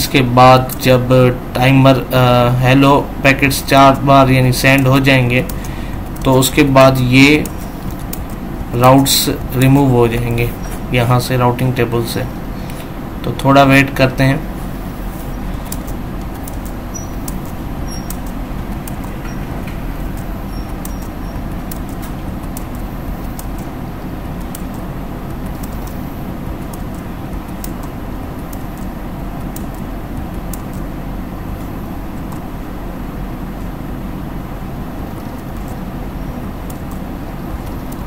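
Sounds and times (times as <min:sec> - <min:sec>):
constant hum: 0:00.0 - 0:38.0
low rumbling noise: 0:00.0 - 0:38.0.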